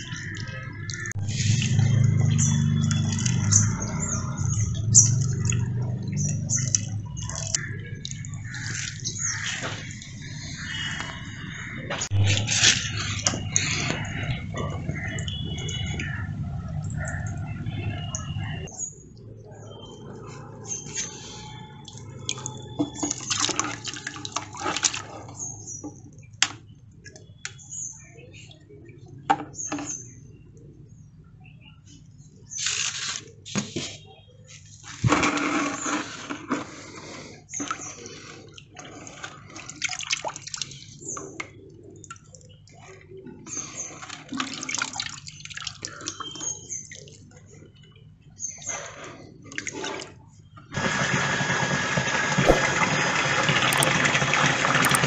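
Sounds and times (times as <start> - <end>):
water splashing and pouring: 0.0 - 17.1, 21.0 - 25.4, 37.6 - 41.0, 43.6 - 47.2, 52.1 - 55.0.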